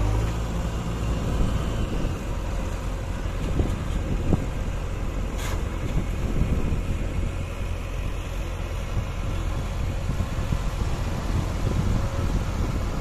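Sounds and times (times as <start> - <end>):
diesel truck engine rumbling: 0.0 - 13.0.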